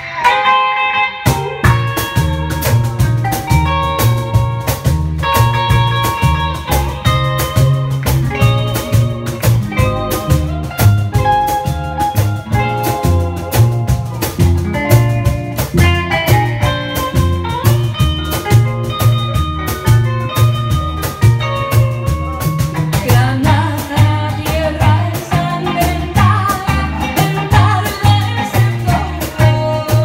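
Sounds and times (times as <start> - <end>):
live band playing: 0.0 - 30.0
woman singing: 22.9 - 30.0.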